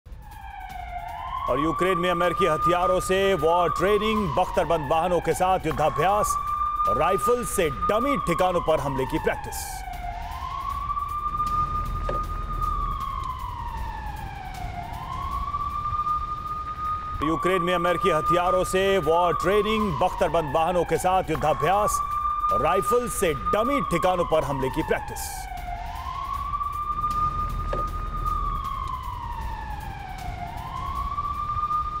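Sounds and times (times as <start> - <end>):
siren wailing: 0.1 - 32.0
low rumble: 9.8 - 19.0, 25.5 - 32.0.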